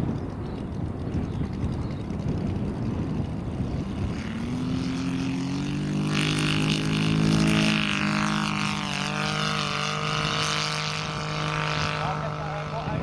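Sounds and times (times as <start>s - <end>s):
model aircraft engine at full throttle: 0.0s - 13.0s
propeller noise: 0.0s - 13.0s.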